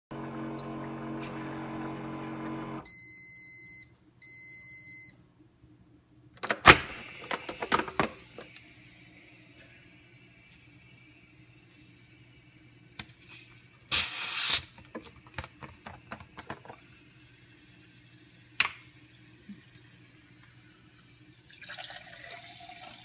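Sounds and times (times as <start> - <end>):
high hiss of escaping gas: 8.2 - 15.5.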